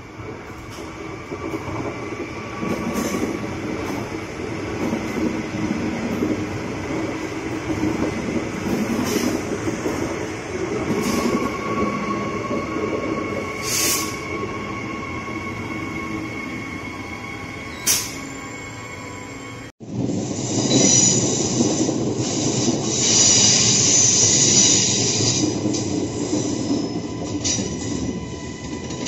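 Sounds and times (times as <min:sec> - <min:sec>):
train rumble: 0:00.0 - 0:29.0
high wheel squeal: 0:11.0 - 0:19.7.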